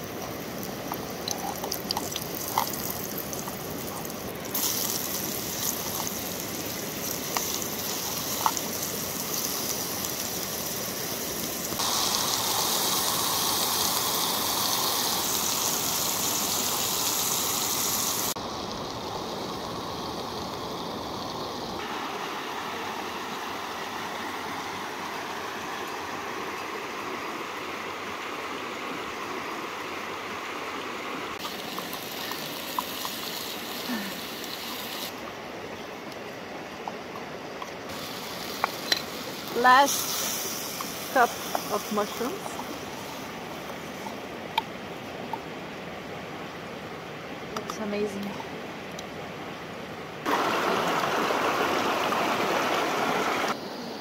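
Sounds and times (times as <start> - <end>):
mushrooms sizzling in oil: 0.0 - 22.2, 31.4 - 35.1, 37.9 - 44.0, 50.3 - 53.5
mountain stream rushing: 0.0 - 54.0.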